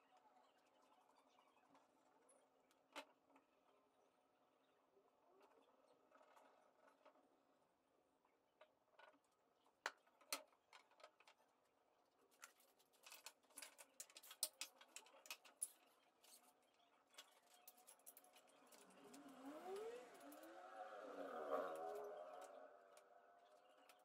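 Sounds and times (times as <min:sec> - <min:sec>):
wavering gliding whine: 0:18.2 - 0:24.0.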